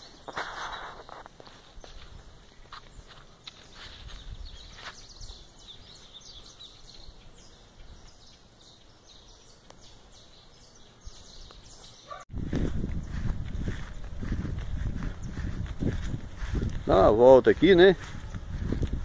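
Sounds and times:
footsteps through grass: 0.0 - 6.6, 12.1 - 19.0
small birds chirping: 0.0 - 19.0.

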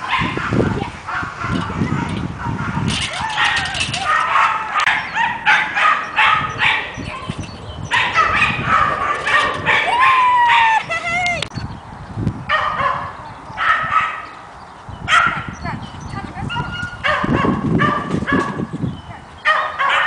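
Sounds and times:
dog barking in high yaps: 1.1 - 11.4, 12.5 - 14.2, 16.5 - 18.7, 19.5 - 20.0.

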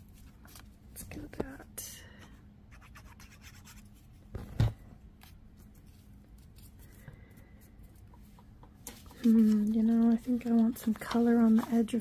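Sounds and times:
paper rustling: 8.9 - 12.0.

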